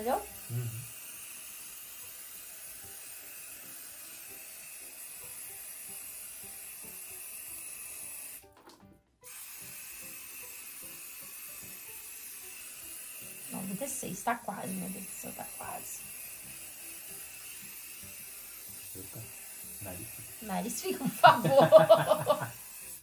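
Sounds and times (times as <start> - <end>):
aerosol hairspray hissing: 0.0 - 8.5, 9.3 - 23.0
faint background music: 0.0 - 23.0.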